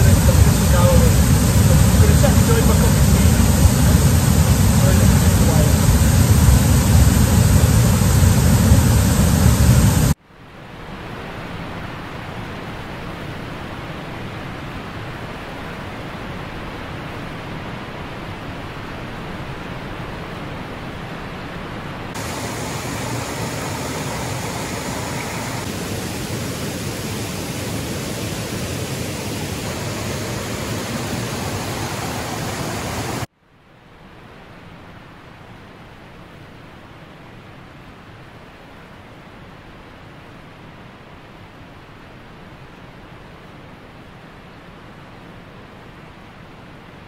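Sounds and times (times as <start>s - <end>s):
stream running over rapids: 0.0s - 5.9s, 22.1s - 33.3s.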